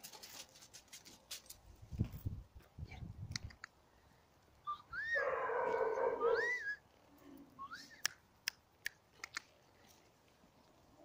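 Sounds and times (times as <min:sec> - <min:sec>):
sharp clicks: 0:03.3 - 0:03.8, 0:08.0 - 0:09.6
puppy whining: 0:04.7 - 0:06.8
person whistling: 0:07.6 - 0:08.1.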